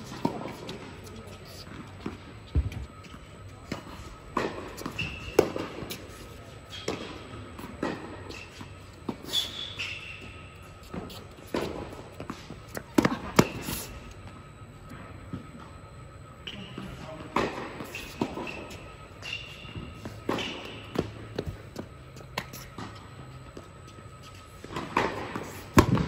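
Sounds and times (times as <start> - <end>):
shoe squeaks on court: 8.3 - 11.3.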